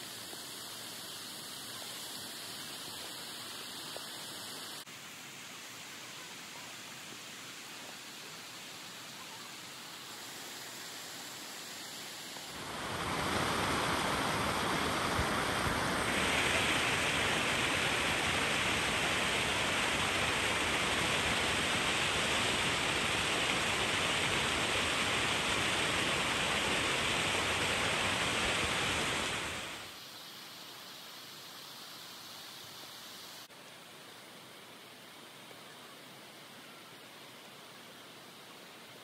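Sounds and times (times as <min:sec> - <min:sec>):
water rushing: 0:00.0 - 0:30.0.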